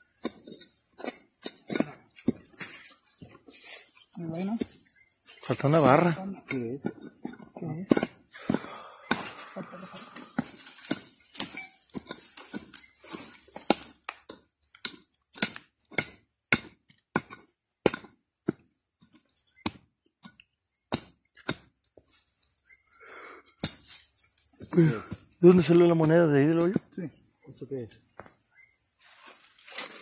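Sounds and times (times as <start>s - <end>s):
shovel scraping dry soil: 0.0s - 5.5s, 10.4s - 14.1s, 29.0s - 30.0s
high insect chirr: 0.0s - 30.0s.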